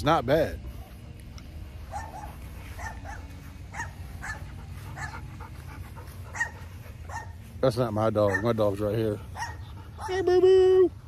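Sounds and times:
steady low hum: 0:00.0 - 0:11.0
dog barking: 0:01.9 - 0:05.3, 0:06.3 - 0:07.4, 0:08.2 - 0:08.8, 0:09.4 - 0:10.2.

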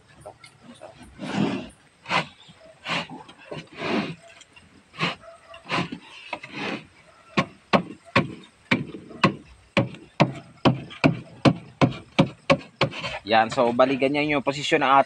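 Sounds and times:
plywood scraping: 0:00.0 - 0:14.0
sharp knocks on wood: 0:07.4 - 0:13.1.

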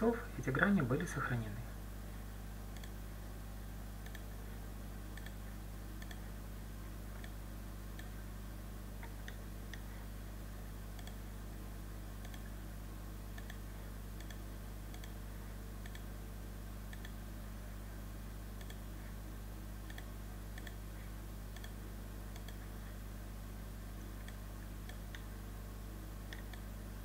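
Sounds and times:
low electrical hum: 0:00.0 - 0:27.0
computer mouse clicking: 0:02.7 - 0:03.0, 0:04.0 - 0:04.3, 0:05.1 - 0:05.4, 0:06.0 - 0:06.3, 0:07.2 - 0:08.2, 0:09.0 - 0:09.9, 0:10.9 - 0:11.2, 0:12.2 - 0:12.5, 0:13.3 - 0:13.6, 0:14.2 - 0:15.2, 0:15.8 - 0:16.1, 0:16.9 - 0:17.2, 0:18.6 - 0:18.9, 0:19.8 - 0:20.8, 0:21.5 - 0:23.0, 0:24.2 - 0:25.3, 0:26.3 - 0:26.7.

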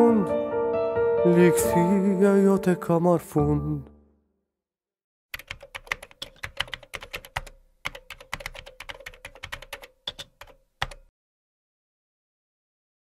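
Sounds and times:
keyboard key clicks: 0:05.4 - 0:11.1.

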